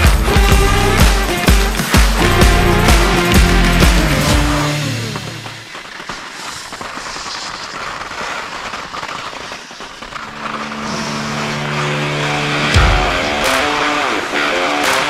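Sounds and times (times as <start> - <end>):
background music chord: 0.0 - 5.4, 10.7 - 14.5
rushing crackling noise: 0.0 - 15.0.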